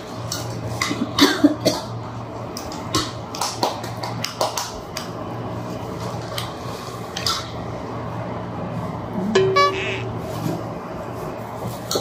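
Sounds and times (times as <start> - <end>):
steady low hum: 4.1 - 12.0.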